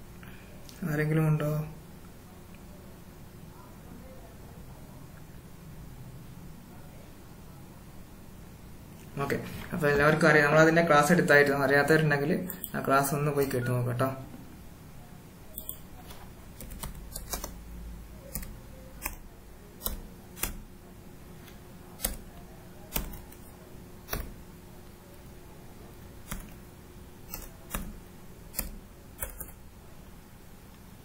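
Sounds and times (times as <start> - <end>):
keyboard keystrokes: 15.6 - 17.6, 18.2 - 20.7, 22.0 - 24.4, 26.2 - 26.6, 27.2 - 29.6.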